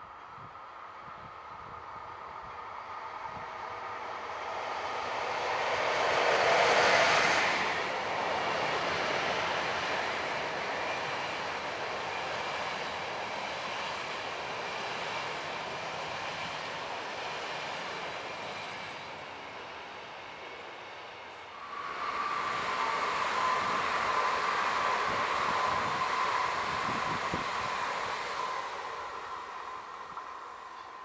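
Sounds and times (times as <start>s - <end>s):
electric locomotive passing: 0.0s - 31.0s
train wheels on rails: 1.0s - 31.0s.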